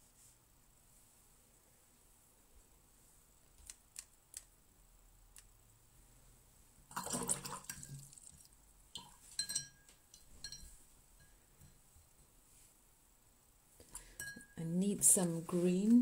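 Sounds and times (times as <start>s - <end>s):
brush clinking against glass: 9.0s - 12.2s, 14.0s - 15.0s
brush swishing in water jar: 14.8s - 16.0s.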